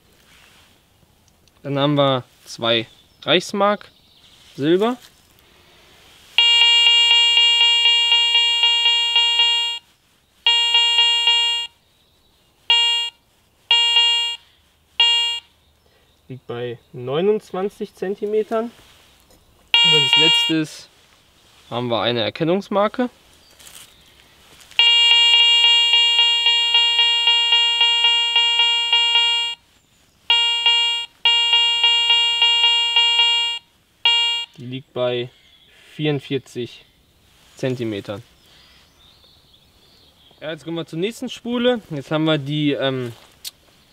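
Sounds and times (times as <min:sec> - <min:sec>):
metal detector buzzy tone: 0:06.4 - 0:09.8, 0:10.5 - 0:11.7, 0:12.7 - 0:14.4, 0:15.0 - 0:15.5, 0:19.8 - 0:20.7, 0:24.8 - 0:29.6, 0:30.3 - 0:34.6.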